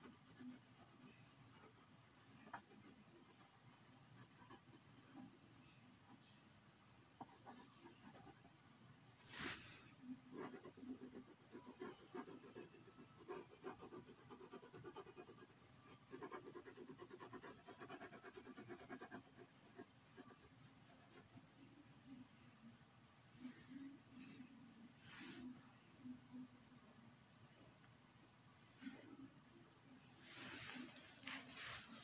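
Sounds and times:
pencil scratching on paper: 0:00.0 - 0:06.4, 0:07.2 - 0:08.6, 0:09.3 - 0:21.6.

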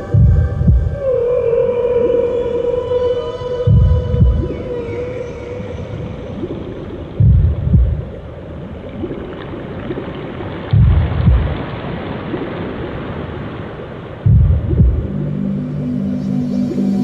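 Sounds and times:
deep boom: 0:10.7 - 0:11.6, 0:14.3 - 0:15.1.

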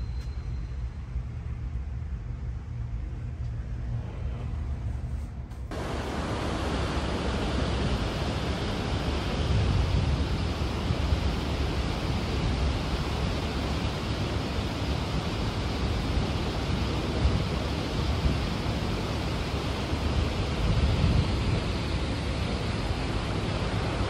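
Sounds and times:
wind on microphone: 0:03.3 - 0:24.0
sea noise: 0:05.7 - 0:24.0.

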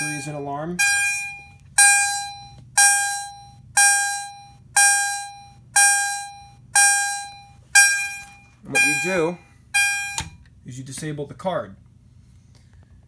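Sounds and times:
fire alarm chime: 0:00.0 - 0:10.4.

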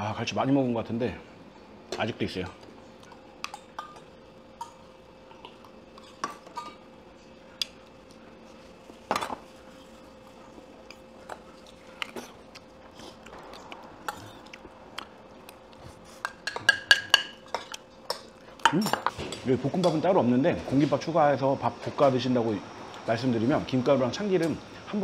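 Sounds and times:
spoon clinking against bowls: 0:16.2 - 0:20.0.

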